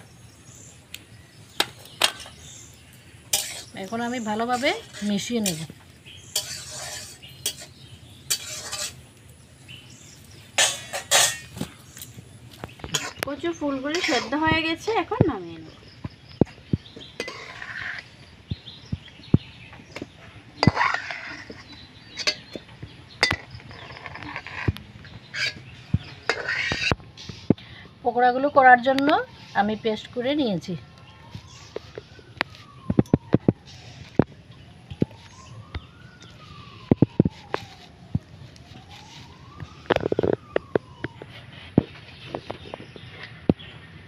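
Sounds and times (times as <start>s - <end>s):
distant siren wailing: 3.7s - 6.0s, 10.1s - 44.0s
ladle clinking against wok: 10.6s - 11.6s.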